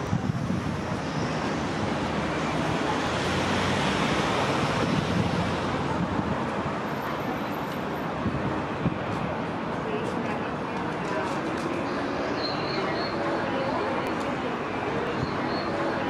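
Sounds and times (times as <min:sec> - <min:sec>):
wind buffeting microphone: 0:00.0 - 0:02.9, 0:04.4 - 0:06.8, 0:08.2 - 0:09.6.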